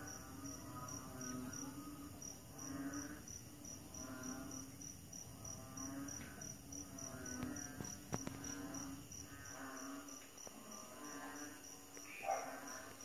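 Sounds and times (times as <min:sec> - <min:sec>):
crickets chirping: 0:00.0 - 0:13.0
frogs croaking: 0:00.0 - 0:13.0.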